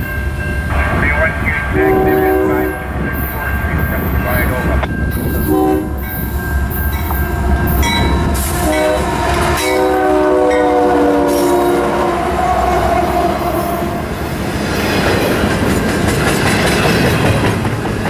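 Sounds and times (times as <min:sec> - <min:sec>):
train air horn: 0:01.7 - 0:02.9, 0:05.4 - 0:06.1, 0:08.4 - 0:14.1
wheels rolling on rail: 0:01.9 - 0:11.8, 0:12.4 - 0:18.0.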